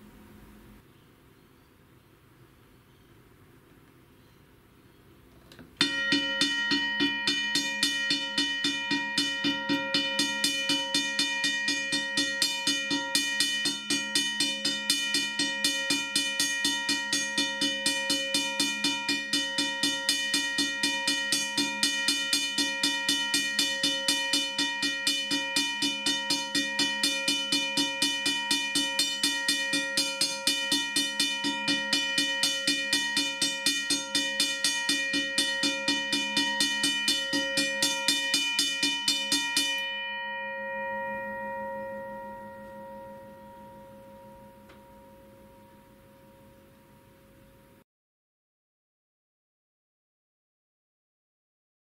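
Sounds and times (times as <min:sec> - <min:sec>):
railroad crossing bell ringing: 0:05.8 - 0:47.0.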